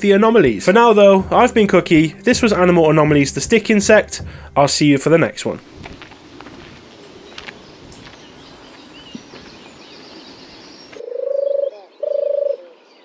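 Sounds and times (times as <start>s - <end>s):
outdoor background noise: 5.0s - 13.0s
birds chirping faintly: 5.4s - 13.0s.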